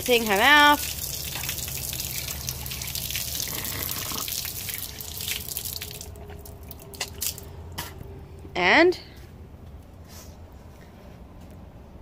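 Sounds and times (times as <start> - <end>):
tap water splashing over hand: 0.0 - 7.4
water drips: 0.0 - 7.5.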